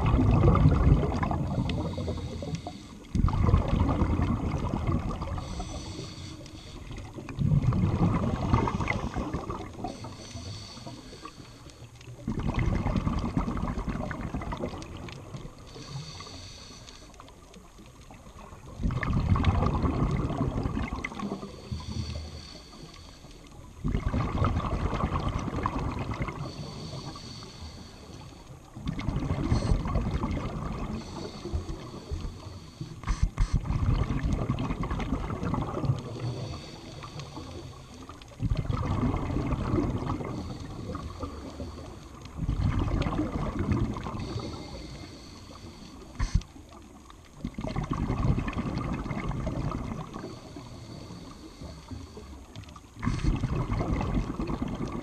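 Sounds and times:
bubbles rushing on exhale: 0.0s - 6.0s, 6.8s - 11.2s, 12.0s - 16.0s, 18.2s - 22.2s, 23.8s - 26.8s, 28.7s - 44.8s, 46.2s - 50.7s, 52.6s - 55.0s
scuba regulator breathing underwater: 0.3s - 13.8s, 15.5s - 17.3s, 19.7s - 46.6s, 48.6s - 55.0s.

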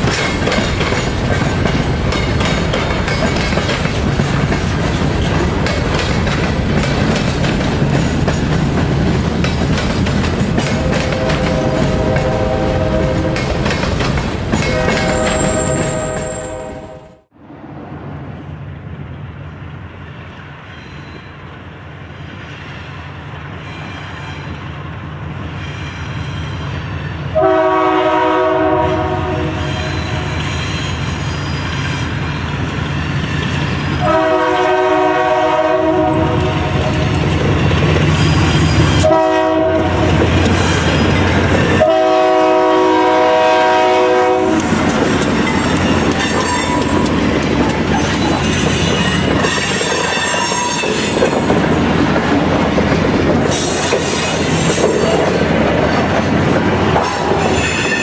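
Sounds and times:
train air horn blasts: 10.7s - 13.6s, 14.6s - 17.3s, 27.3s - 30.8s, 34.0s - 37.1s, 38.9s - 40.2s, 41.8s - 44.8s.

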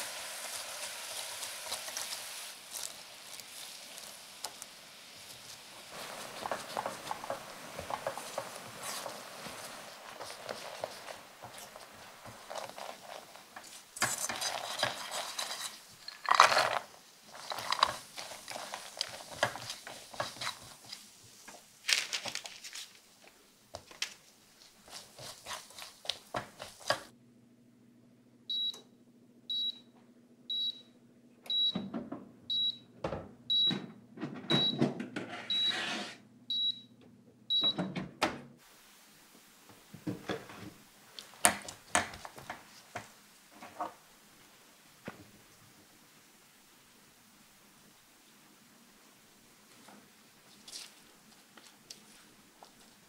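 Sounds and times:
spatula scraping frying pan: 5.2s - 21.5s, 35.2s - 36.2s
kitchen appliance beeping: 28.5s - 28.9s, 29.5s - 29.9s, 30.5s - 31.9s, 32.5s - 32.9s, 33.5s - 34.9s, 35.5s - 36.9s, 37.5s - 38.0s.

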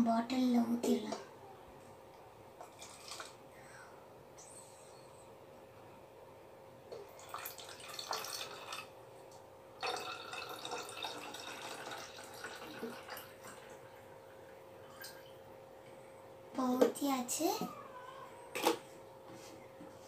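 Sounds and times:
liquid trickling into bottle: 9.8s - 13.7s.

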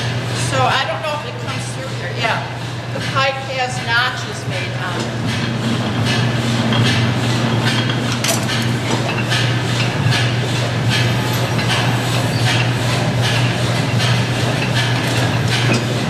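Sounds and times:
drive belts and pulleys humming: 0.0s - 16.0s
regular clacking of belts: 4.9s - 16.0s.

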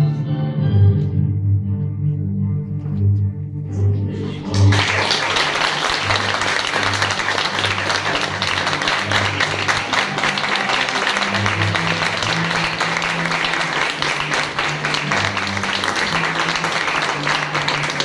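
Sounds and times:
audience applauding: 4.5s - 18.0s.

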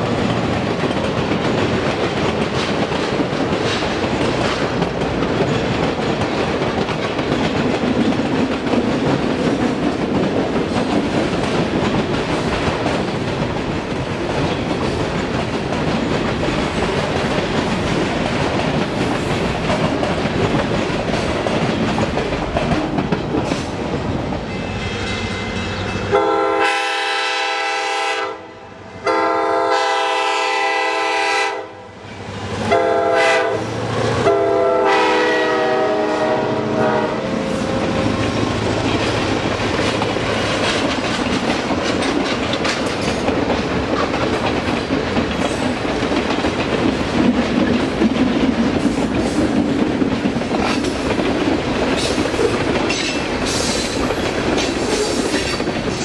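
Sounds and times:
freight cars clacking over rail joints: 0.0s - 23.8s, 37.8s - 56.0s
locomotive air horn blasts: 26.1s - 31.9s, 32.7s - 37.7s.

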